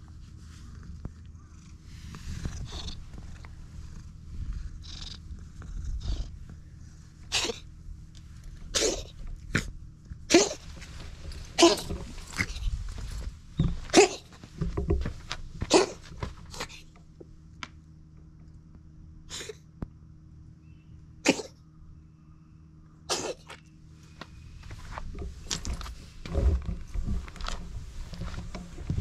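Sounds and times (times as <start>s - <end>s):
cat purring: 0.2s - 7.7s.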